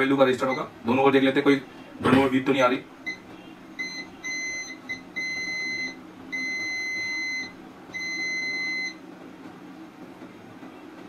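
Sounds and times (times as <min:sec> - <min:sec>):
multimeter continuity beeps: 0:00.4 - 0:00.7, 0:03.0 - 0:09.0.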